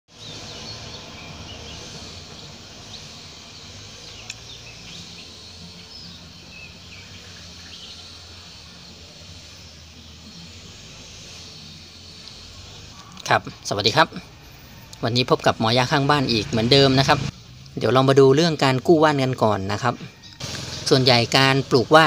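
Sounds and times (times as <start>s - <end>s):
bird chirps: 0.1s - 15.1s
high insect hiss: 0.1s - 22.0s.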